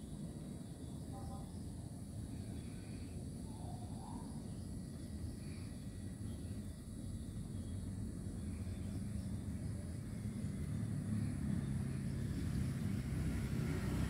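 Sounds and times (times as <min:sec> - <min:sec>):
vehicle engine rumble: 0:04.3 - 0:14.0.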